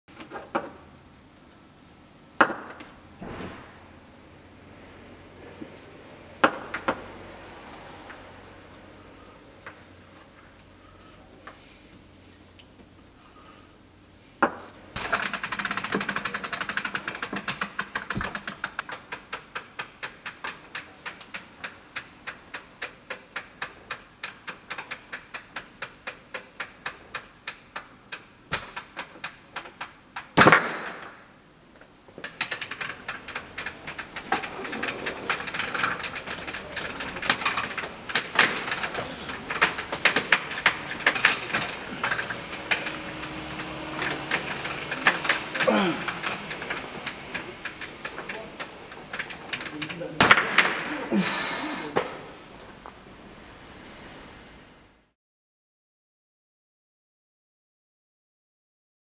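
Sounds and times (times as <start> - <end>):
loud bang: 3.2 - 4.0
test bench winding clicks: 15.0 - 30.4, 32.2 - 50.2.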